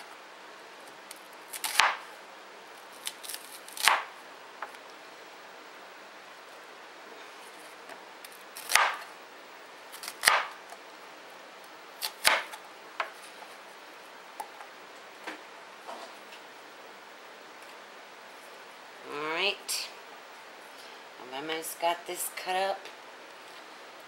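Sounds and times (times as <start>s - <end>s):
knife cutting onion on board: 8.6s - 9.1s.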